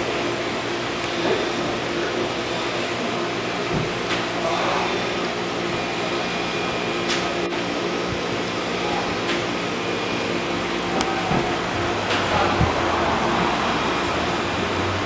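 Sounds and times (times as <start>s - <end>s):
machinery hum with hiss: 0.0s - 15.0s.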